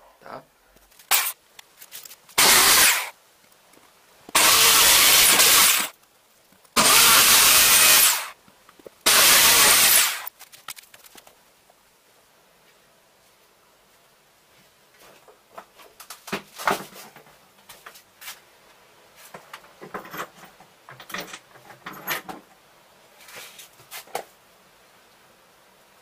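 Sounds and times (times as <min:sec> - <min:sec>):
objects knocking and clattering: 0:19.4 - 0:22.5.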